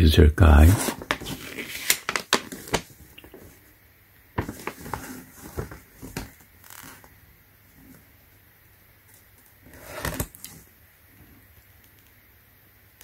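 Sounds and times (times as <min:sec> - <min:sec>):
paper pages rustling: 0:00.7 - 0:03.6, 0:04.4 - 0:07.1.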